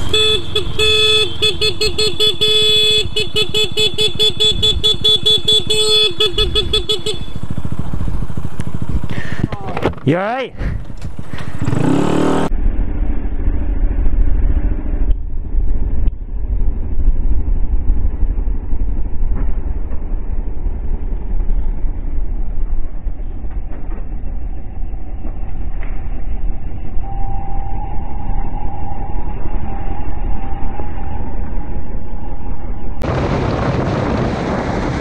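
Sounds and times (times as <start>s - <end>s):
motorcycle engine: 0.0s - 27.0s, 33.0s - 35.0s
high engine whine: 0.0s - 35.0s
wind rumble on microphone: 12.5s - 35.0s.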